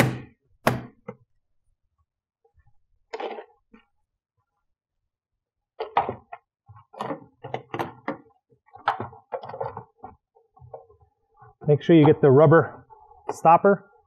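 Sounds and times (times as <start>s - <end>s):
plastic panels knocking and clicking: 5.8s - 11.0s.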